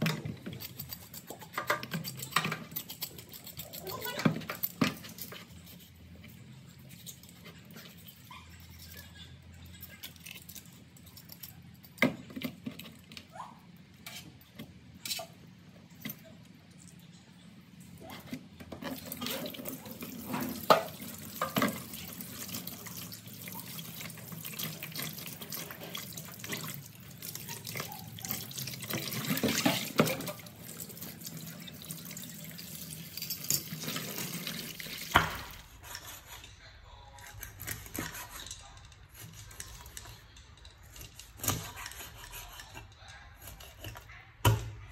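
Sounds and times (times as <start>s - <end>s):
cleaver scraping fish: 0.0s - 11.7s, 33.2s - 44.2s.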